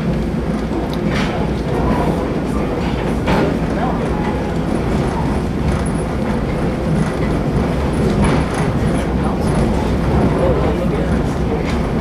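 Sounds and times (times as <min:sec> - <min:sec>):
train wheels rumbling on track: 0:00.0 - 0:12.0
train wheels clacking: 0:00.1 - 0:12.0.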